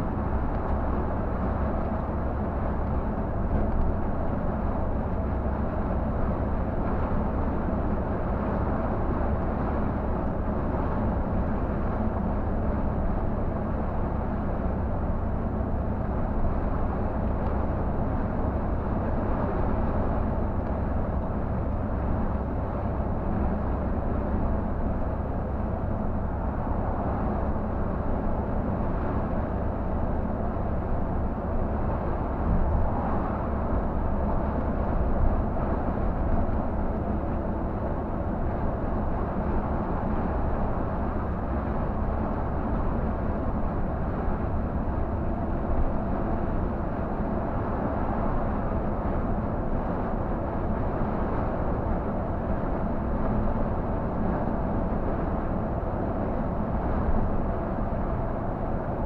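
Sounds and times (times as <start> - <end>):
diesel engine drone: 0.0 - 59.0
road and tyre noise: 0.0 - 59.0.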